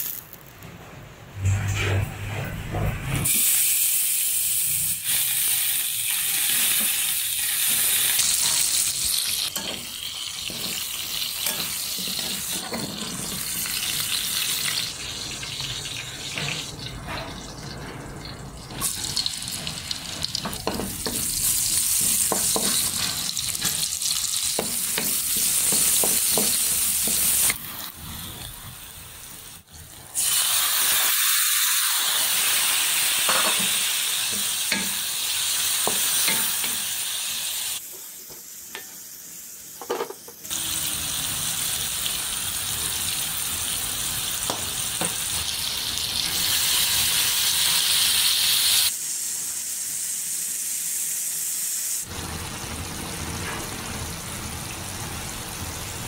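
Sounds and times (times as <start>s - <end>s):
pork sizzling in a wok: 0.0s - 0.6s, 3.2s - 56.0s
spatula stirring and scraping: 9.5s - 13.5s.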